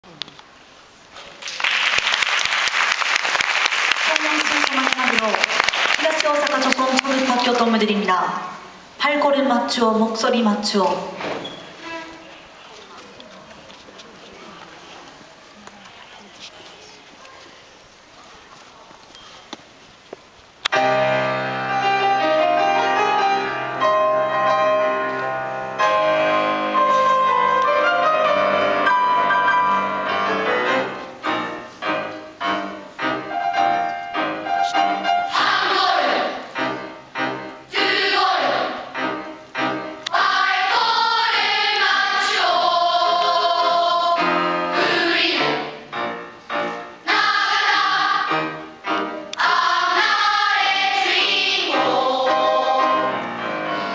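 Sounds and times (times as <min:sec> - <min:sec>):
instrumental accompaniment: 0:20.7 - 0:53.9
children's choir singing: 0:25.9 - 0:53.9.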